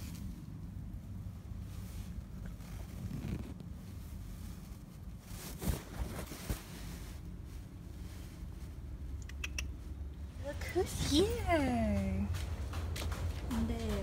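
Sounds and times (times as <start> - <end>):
low steady rumble: 0.0 - 14.0
phone rubbing against curtain: 2.6 - 3.9.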